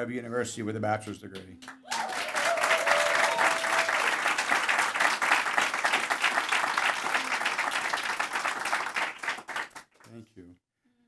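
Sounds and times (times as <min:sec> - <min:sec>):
audience applauding: 0:01.6 - 0:10.1.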